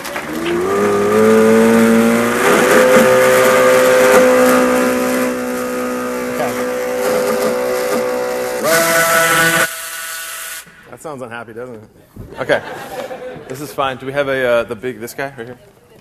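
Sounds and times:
electric blender motor whining: 0.0s - 10.8s.

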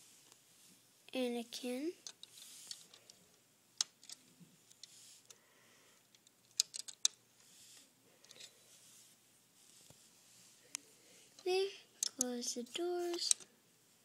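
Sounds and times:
plastic bricks clicking: 2.0s - 3.0s, 3.8s - 4.9s, 6.1s - 7.2s, 11.4s - 12.3s, 13.1s - 13.4s.

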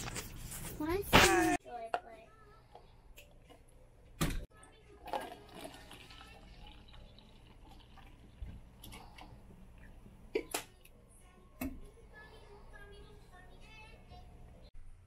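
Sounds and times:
coffee trickling into cup: 4.9s - 10.5s.

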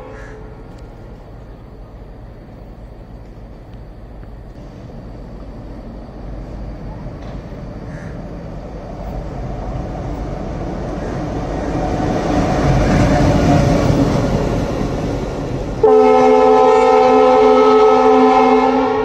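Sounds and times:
locomotive horn chord: 0.0s - 0.6s, 15.8s - 19.0s
diesel locomotive passing: 0.0s - 19.0s.

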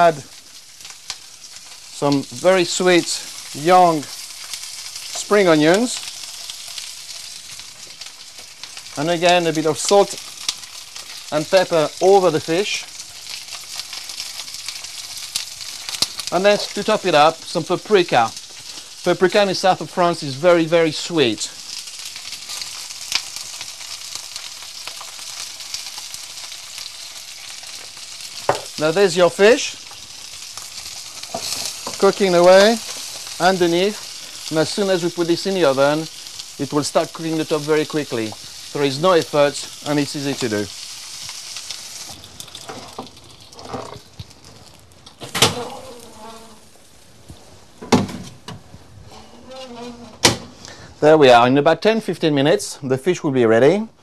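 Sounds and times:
fish and vegetables sizzling in oil: 0.0s - 48.5s
small crackles: 0.0s - 50.9s
faint squeak: 45.6s - 46.6s, 49.1s - 50.2s.

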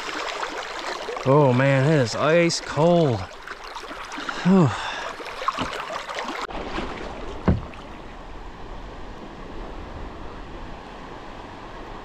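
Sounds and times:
fast-flowing river water: 0.0s - 8.2s
sharp thump: 7.4s - 7.7s.

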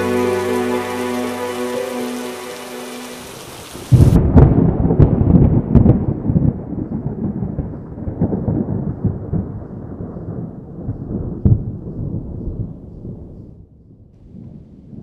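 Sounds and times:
rolling thunder rumbling: 3.3s - 13.4s
sharp thunder crack: 3.9s - 12.3s.

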